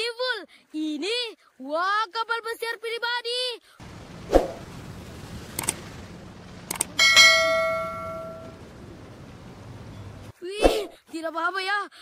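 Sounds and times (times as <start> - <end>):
bell ringing: 7.0 - 8.6.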